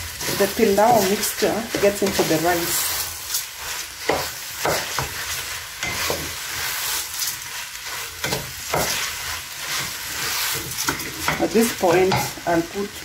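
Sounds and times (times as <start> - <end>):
rice sizzling in a pot: 0.0 - 13.0
wooden spoon scraping a pot: 0.2 - 12.4.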